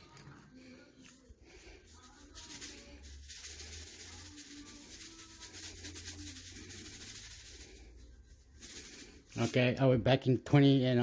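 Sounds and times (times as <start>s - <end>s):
seasoning shaker rattling: 1.0s - 9.8s.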